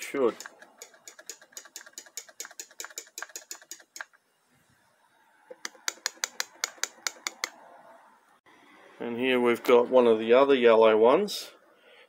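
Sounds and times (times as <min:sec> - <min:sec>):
solenoid clicking rapidly: 0:00.2 - 0:04.2, 0:05.6 - 0:07.6.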